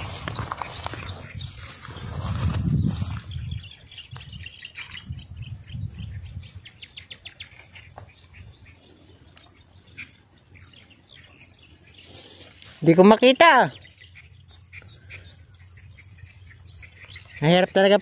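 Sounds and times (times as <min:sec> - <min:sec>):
rustling through vegetation: 0:00.0 - 0:05.1, 0:06.5 - 0:15.2
birds chirping: 0:00.0 - 0:18.0.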